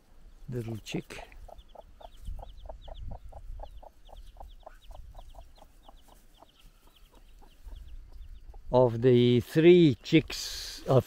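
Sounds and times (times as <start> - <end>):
chick peeping: 0.3 - 9.0
hen clucking: 0.6 - 9.0.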